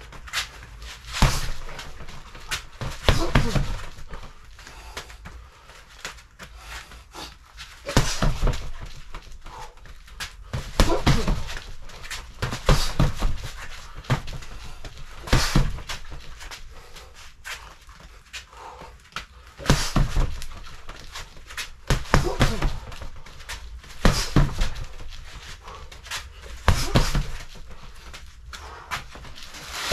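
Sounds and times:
hard breathing: 0:00.3 - 0:29.9
punches thudding on dummy: 0:01.1 - 0:04.3, 0:07.9 - 0:09.8, 0:10.5 - 0:16.9, 0:19.6 - 0:25.8, 0:26.4 - 0:27.8.

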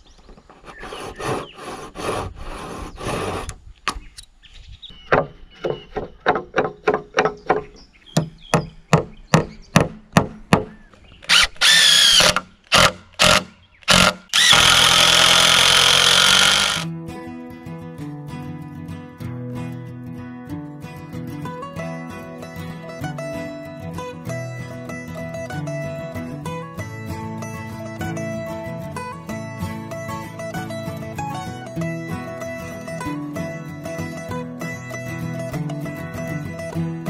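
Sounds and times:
handsaw cutting wood: 0:00.5 - 0:03.6, 0:11.3 - 0:16.9
cordless drill running: 0:11.3 - 0:16.9
soft guitar music: 0:16.9 - 0:37.0.

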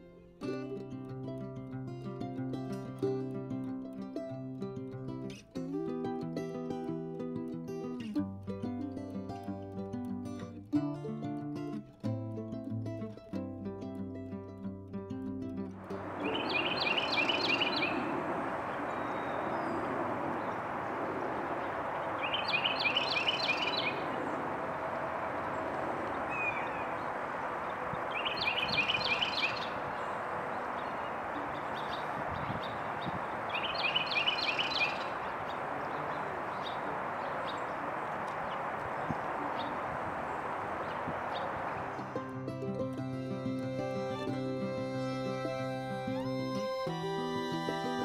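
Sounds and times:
steady background noise: 0:15.8 - 0:42.9
wren singing repeated phrase: 0:16.2 - 0:18.1, 0:22.2 - 0:24.1, 0:28.1 - 0:29.8, 0:31.8 - 0:35.3.

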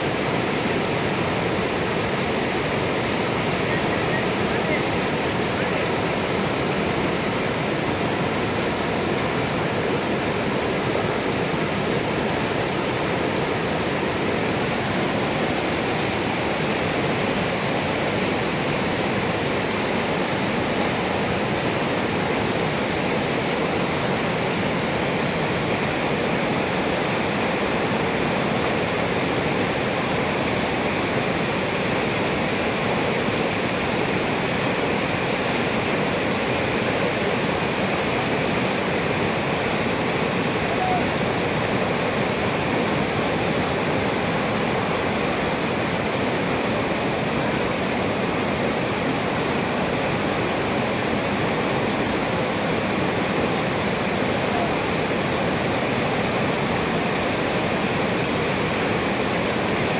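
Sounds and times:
river rushing over rapids: 0:00.0 - 0:59.9.

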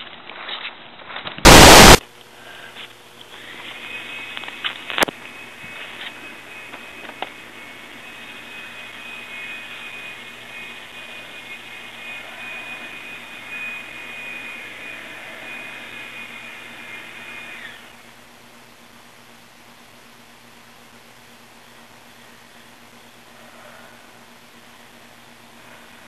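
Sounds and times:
machine whining: 0:01.4 - 0:02.0, 0:03.2 - 0:18.1
rushing noise: 0:01.4 - 0:02.0.

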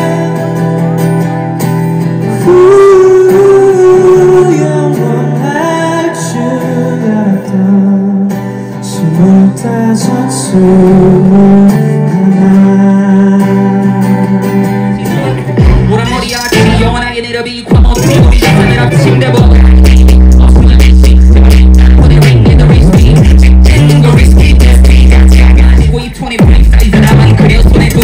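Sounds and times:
man singing into a microphone: 0:00.0 - 0:00.8, 0:02.2 - 0:28.0
acoustic guitar strumming: 0:00.0 - 0:28.0.

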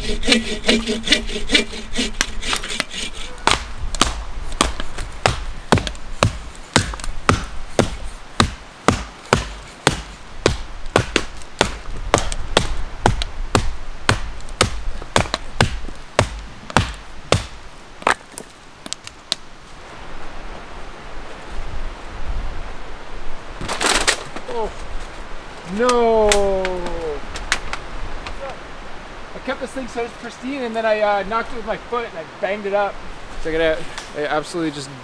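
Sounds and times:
axe chopping firewood: 0:00.3 - 0:19.4.

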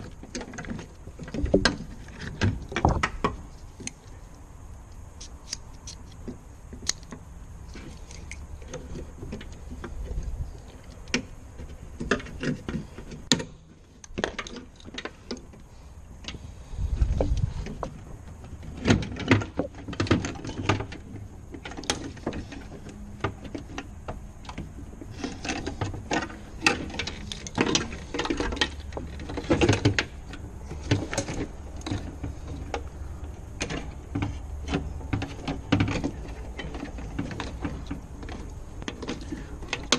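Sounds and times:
plastic parts clicking and rattling: 0:05.2 - 0:16.4, 0:17.1 - 0:39.9.

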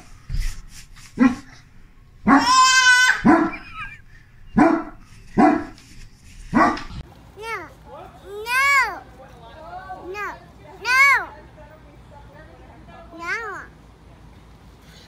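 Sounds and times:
dog barking: 0:01.2 - 0:01.6, 0:02.2 - 0:05.8, 0:06.5 - 0:07.0
dog high-pitched cry: 0:02.2 - 0:05.8.

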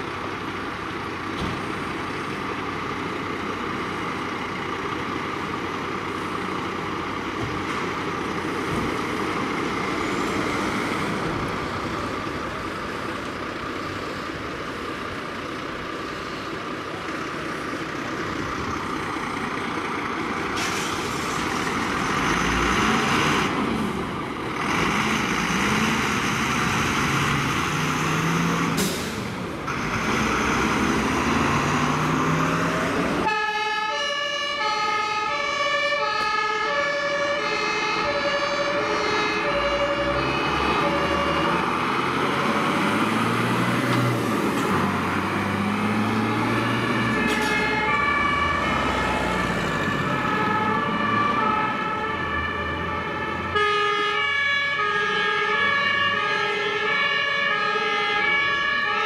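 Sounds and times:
diesel engines revving: 0:00.0 - 0:59.0
traffic noise: 0:00.0 - 0:59.0
sirens: 0:29.8 - 0:59.0
two-tone siren horn: 0:33.2 - 0:41.6, 0:46.3 - 0:48.8, 0:49.7 - 0:59.0.

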